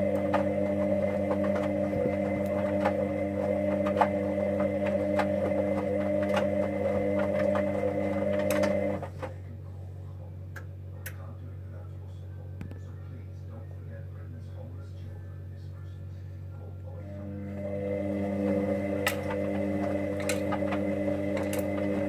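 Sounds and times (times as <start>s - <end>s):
washing machine motor whine: 0.0s - 9.6s, 16.8s - 22.0s
low hum: 0.0s - 22.0s.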